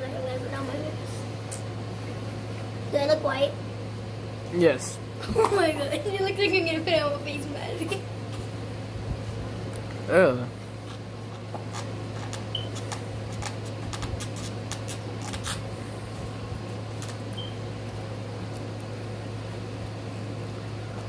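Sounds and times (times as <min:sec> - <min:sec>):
room fan humming: 0:00.0 - 0:21.0.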